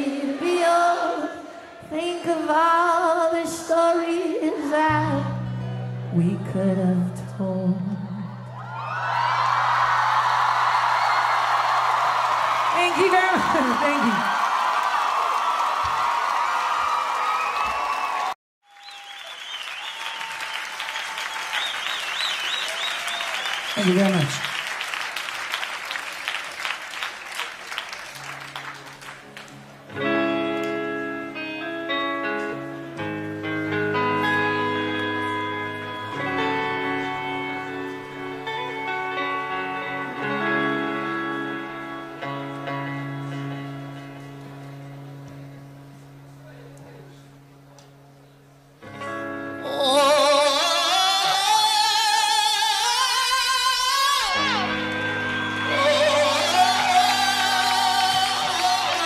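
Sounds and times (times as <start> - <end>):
audience applause: 8.6 - 29.9, 53.0 - 59.0
high singing voice: 49.6 - 59.0.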